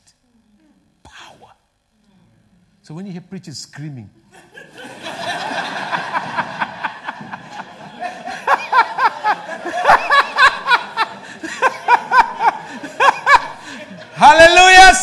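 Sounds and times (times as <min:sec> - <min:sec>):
congregation laughing: 0:04.3 - 0:15.0
person laughing loudly: 0:04.6 - 0:14.2.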